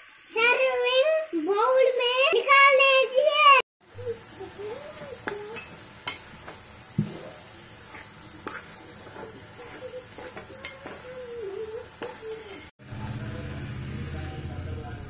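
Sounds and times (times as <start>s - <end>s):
steady hiss: 0.0s - 14.8s
faint wavering voice-like tone: 3.9s - 5.7s, 9.1s - 12.7s
metal spoon scraping pot: 7.9s - 12.7s.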